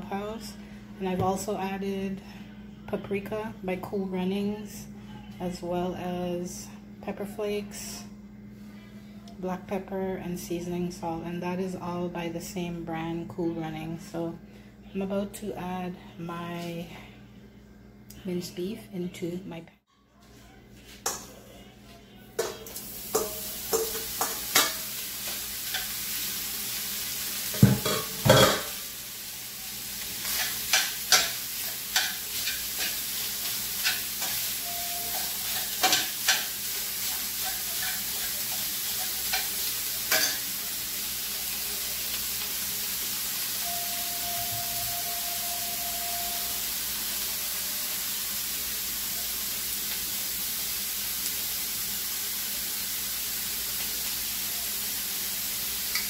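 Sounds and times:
metal spoon scraping a pan: 22.4s - 24.9s, 30.2s - 40.5s
meat sizzling in a frying pan: 22.4s - 56.0s.

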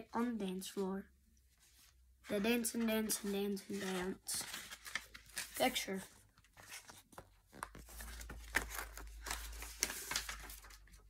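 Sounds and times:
book pages rustling: 1.5s - 11.0s.

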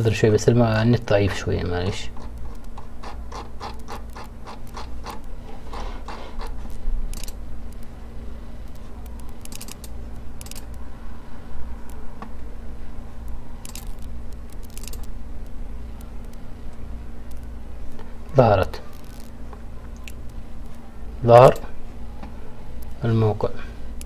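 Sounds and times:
steady low hum: 0.0s - 24.0s
scraping clicks: 1.9s - 7.9s, 8.7s - 10.8s, 13.6s - 15.1s, 18.9s - 20.8s.

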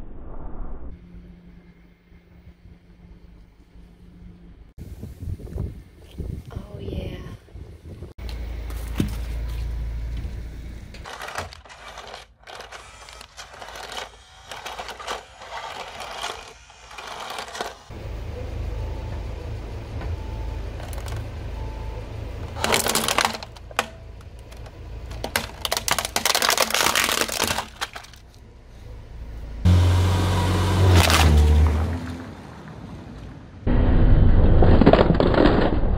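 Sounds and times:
loud low drone: 0.0s - 4.7s, 28.5s - 31.9s, 33.6s - 34.8s
car engine rumble: 7.5s - 34.5s
plastic toy cracking: 11.0s - 17.9s, 22.6s - 28.2s
snack packet crinkling: 11.1s - 17.9s, 22.6s - 23.9s, 24.5s - 28.2s.

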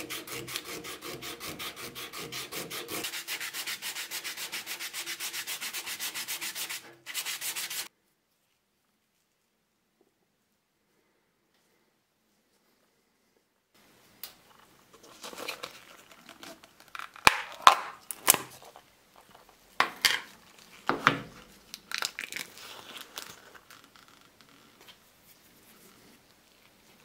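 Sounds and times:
plastic film rustling and crackling: 14.6s - 25.4s.

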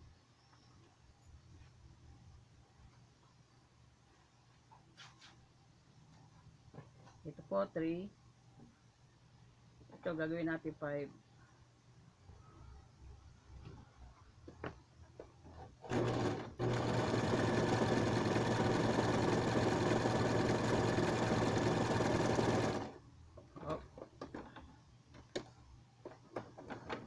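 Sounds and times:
sewing machine stitching: 15.5s - 23.0s.

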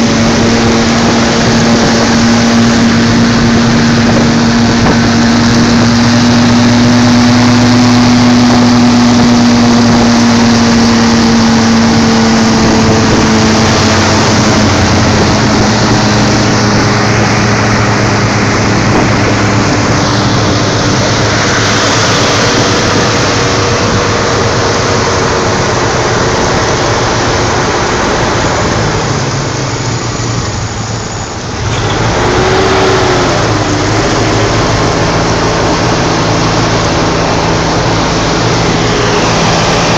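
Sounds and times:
rushing noise: 0.0s - 39.9s
vehicle engine hum: 0.0s - 39.9s.

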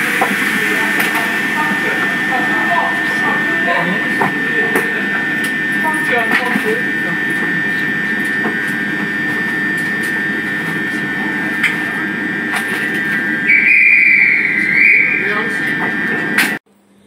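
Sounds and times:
train rumble with high whine: 0.0s - 16.8s
train brakes squealing: 13.0s - 16.3s.

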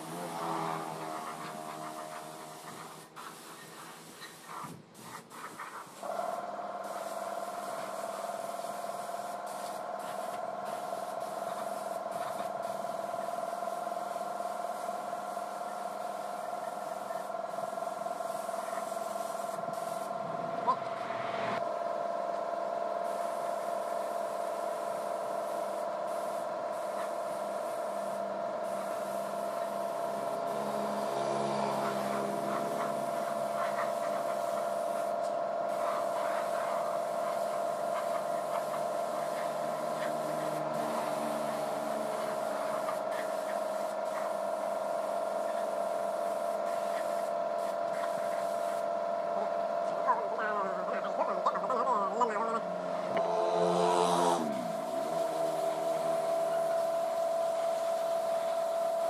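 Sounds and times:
spray gun hissing: 0.0s - 21.6s, 23.0s - 49.0s, 54.4s - 59.0s
steady whine: 19.4s - 22.9s, 28.0s - 34.5s, 52.4s - 57.2s.

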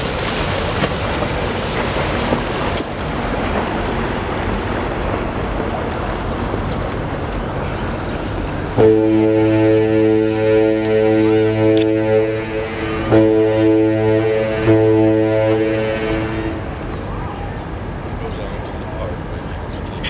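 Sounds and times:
water noise: 0.0s - 20.0s
wind: 0.0s - 20.0s
deep ship's horn blast: 8.7s - 17.4s.

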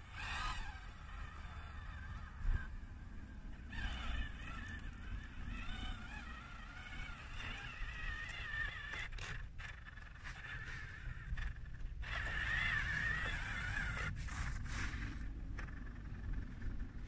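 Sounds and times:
electric motors whining: 0.0s - 17.0s
low rumble: 12.9s - 17.0s.

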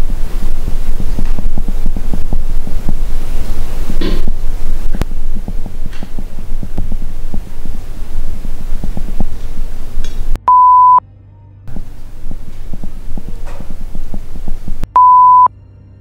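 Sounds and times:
choppy radio static: 0.0s - 10.4s, 11.7s - 15.5s
steady beep: 10.4s - 11.0s, 14.8s - 15.5s.

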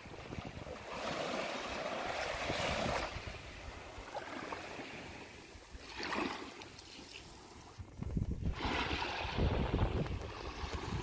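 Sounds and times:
small waves washing on beach: 0.0s - 11.0s.

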